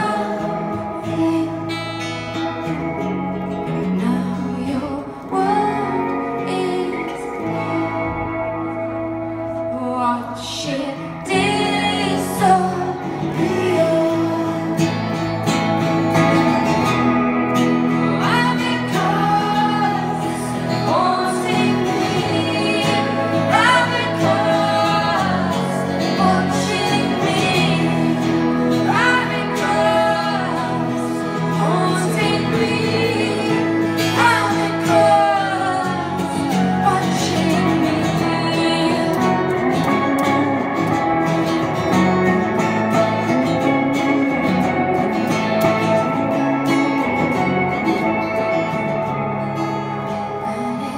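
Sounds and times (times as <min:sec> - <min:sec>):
woman singing: 0:00.0 - 0:02.6, 0:03.6 - 0:08.7, 0:09.5 - 0:15.2, 0:17.7 - 0:40.8, 0:50.2 - 0:50.9
guitar chords: 0:00.0 - 0:50.9.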